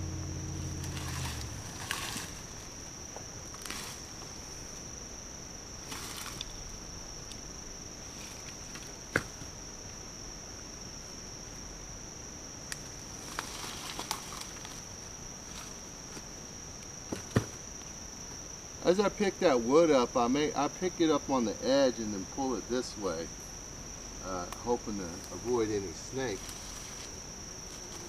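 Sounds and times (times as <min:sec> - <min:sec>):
insect drone: 0:00.0 - 0:28.0
brush rustling: 0:00.6 - 0:04.8, 0:05.8 - 0:06.8, 0:08.0 - 0:09.5, 0:12.8 - 0:16.4, 0:25.1 - 0:28.0.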